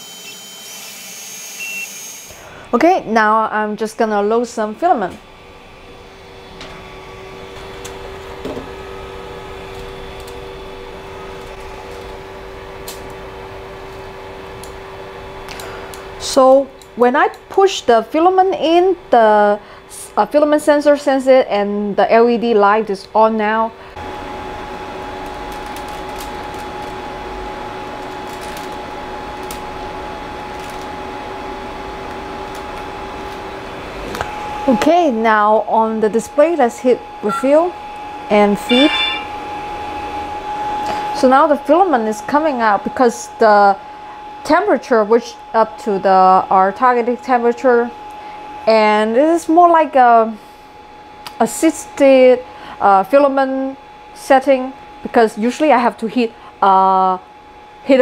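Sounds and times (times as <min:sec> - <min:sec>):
cooling fans humming: 0:00.0 - 0:58.0
printer whir and hum: 0:23.9 - 0:35.1
steady tones: 0:37.2 - 0:40.0.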